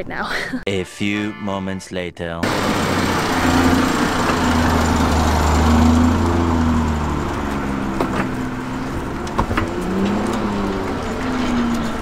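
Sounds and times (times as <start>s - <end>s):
two-stroke car engine running: 2.4s - 12.0s.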